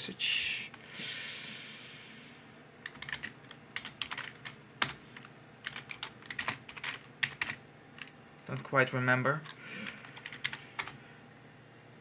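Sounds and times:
computer keyboard typing: 2.8s - 8.8s, 9.4s - 11.0s.

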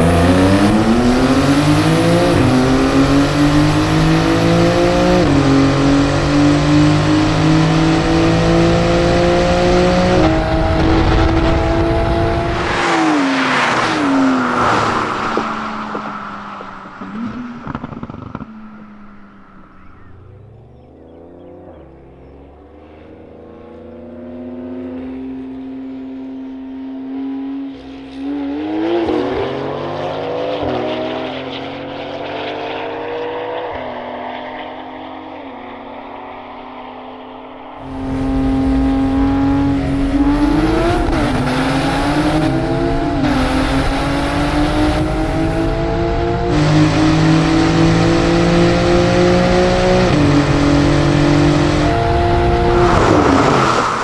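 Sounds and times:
car engine heard inside cabin: 0.0s - 12.9s, 15.2s - 28.5s, 37.6s - 54.0s
sports car engine accelerating: 0.0s - 54.0s.

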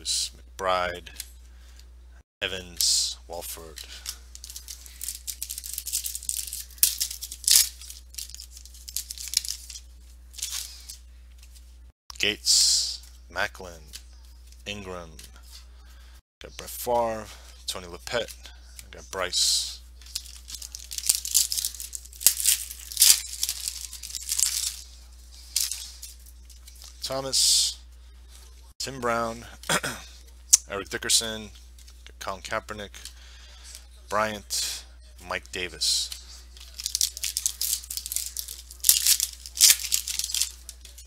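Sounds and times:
steady low hum: 0.0s - 41.0s
trading cards rustling and flicking: 2.7s - 11.8s, 16.9s - 27.2s, 29.5s - 32.2s, 35.4s - 41.0s.

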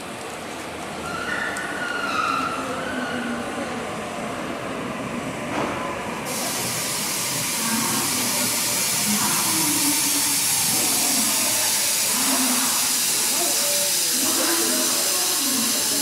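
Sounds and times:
electric train pulling in: 3.4s - 16.0s
steady hiss: 6.3s - 16.0s.

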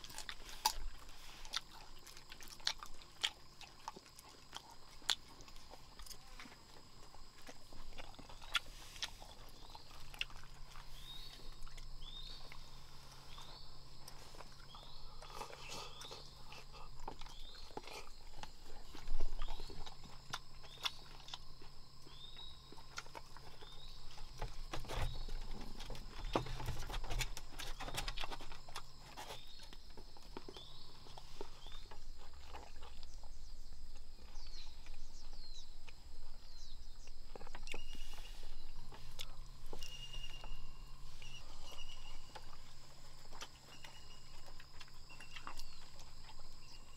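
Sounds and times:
high insect drone: 0.0s - 46.9s
knocks and rustles: 24.2s - 30.6s
short chirping call: 39.8s - 42.3s.

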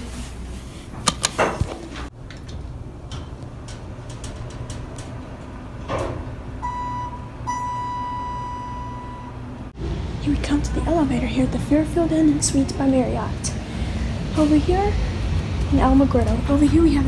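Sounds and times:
electronic beep tone: 6.6s - 9.4s.

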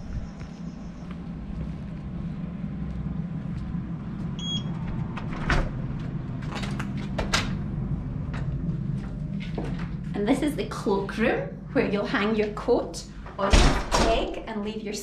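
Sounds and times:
steady low rumble: 0.0s - 15.0s
short electronic beep: 4.4s - 4.7s
glass door being pulled open: 4.9s - 7.8s.

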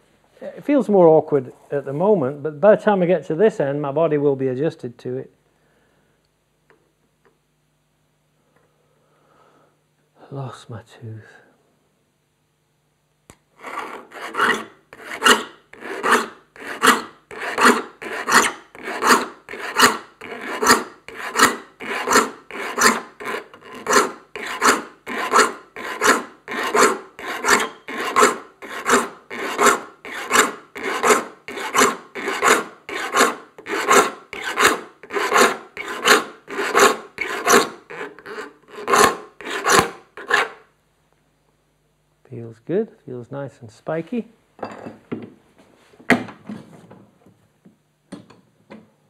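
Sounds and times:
file rasping on saw teeth: 13.6s - 40.6s.

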